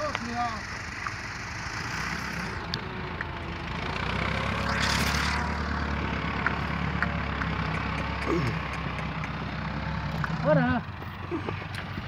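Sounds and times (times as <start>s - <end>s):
engine running: 0.0s - 12.0s.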